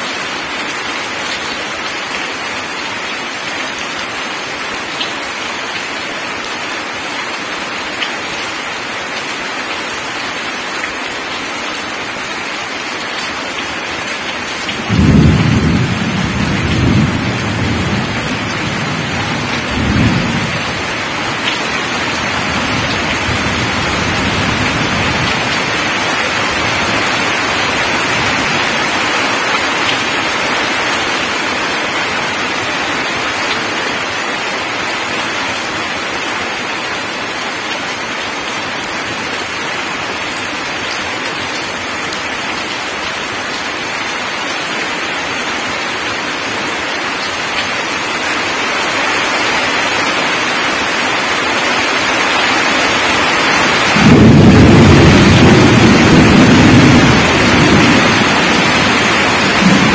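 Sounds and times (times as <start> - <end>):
heavy rain on gravel: 0.0 - 59.9
thunder rumbling: 14.8 - 27.2, 53.9 - 59.9.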